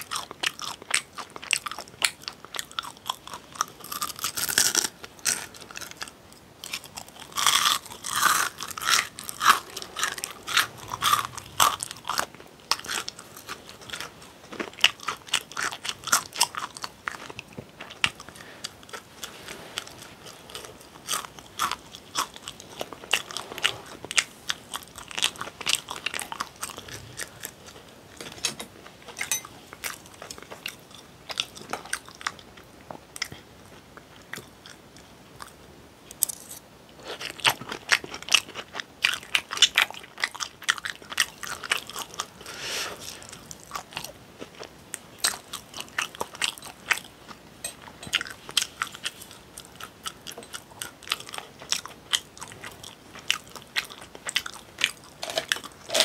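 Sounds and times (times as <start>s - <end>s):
crunching crispy fried chicken: 0.0s - 27.8s
person chewing: 0.0s - 28.0s, 29.2s - 56.0s.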